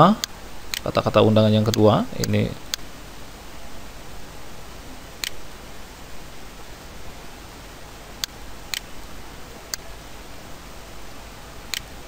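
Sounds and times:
microphone hiss: 0.0 - 12.0
computer mouse clicks: 5.2 - 5.4, 8.2 - 8.9, 11.7 - 11.9.

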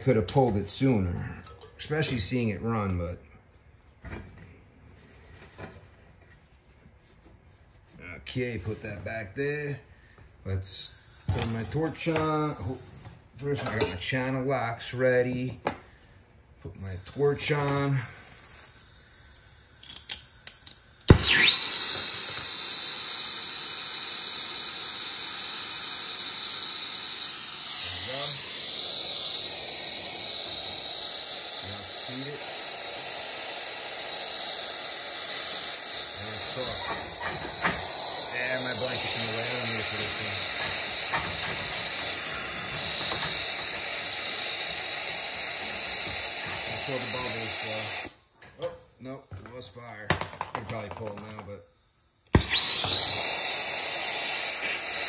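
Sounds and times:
high steady whistle: 10.7 - 13.0, 16.8 - 50.0, 51.8 - 55.0
torch flame hissing: 10.7 - 13.1, 16.8 - 49.9, 51.6 - 55.0
gas torch igniting pop: 19.7 - 22.5, 28.9 - 48.9, 52.2 - 55.0
gas torch igniter clicks: 33.8 - 48.7.

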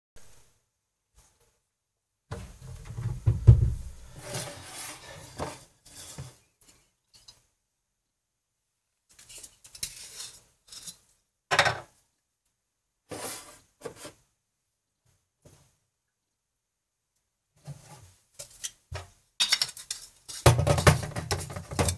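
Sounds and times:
rustling and bumping: 2.3 - 5.6, 20.3 - 21.9.

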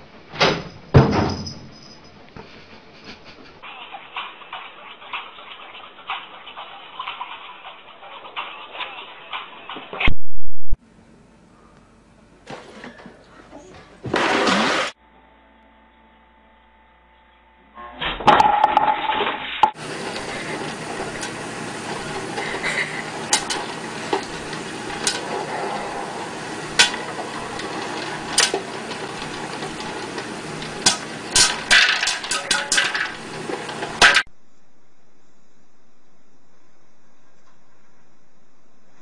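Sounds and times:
popcorn popper running: 14.0 - 15.0, 18.2 - 34.3
loud clatter: 18.3 - 34.3
popcorn kernels popping: 19.8 - 25.5, 26.2 - 34.3.

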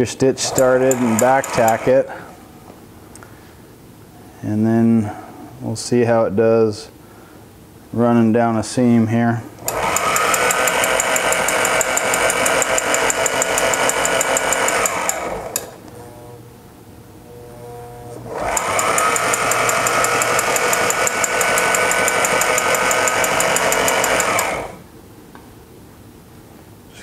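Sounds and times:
sewing machine stitching: 0.4 - 2.1, 9.6 - 15.8, 18.2 - 24.8.

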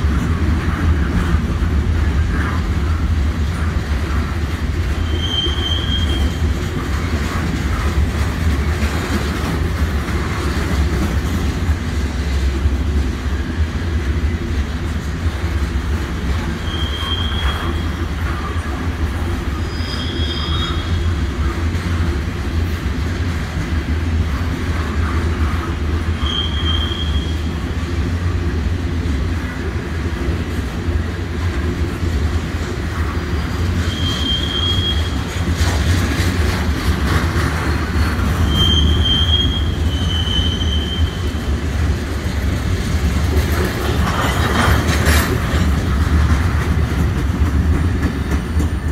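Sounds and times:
freight train wheels rumbling: 0.0 - 48.9
high-pitched wheel squeals: 5.0 - 6.5, 16.5 - 18.1, 19.5 - 21.2, 26.2 - 27.5, 33.8 - 35.2, 38.4 - 41.4.

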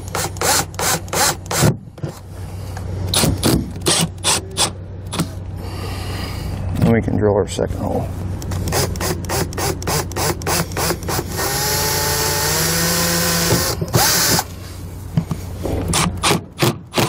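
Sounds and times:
cordless drill drilling sheet metal: 0.0 - 1.7, 8.7 - 14.5.

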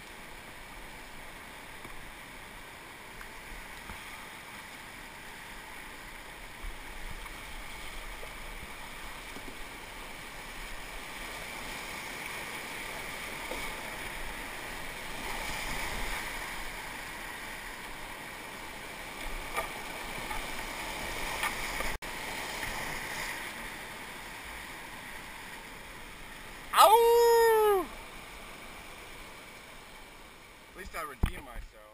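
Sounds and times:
whitewater rushing: 19.2 - 28.1.

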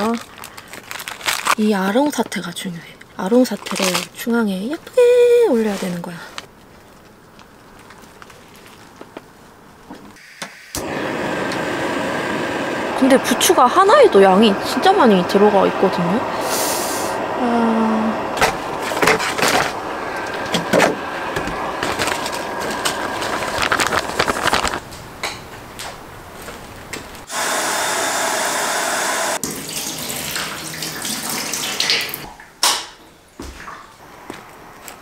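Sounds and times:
plastic packets crinkling: 0.0 - 2.4, 3.3 - 4.8, 5.6 - 9.4, 21.7 - 25.0.

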